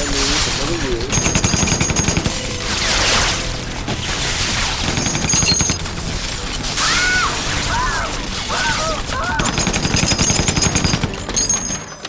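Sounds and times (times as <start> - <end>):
automatic gunfire: 1.1 - 2.6, 4.8 - 6.0, 9.3 - 11.8
woman screaming: 6.8 - 9.6.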